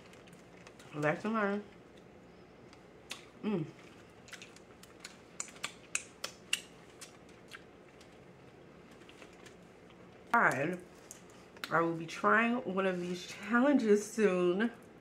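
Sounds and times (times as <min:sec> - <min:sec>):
mouth clicks and lip smacks: 0:03.1 - 0:03.3, 0:04.2 - 0:08.2
woman short vocal sound: 0:03.4 - 0:03.8.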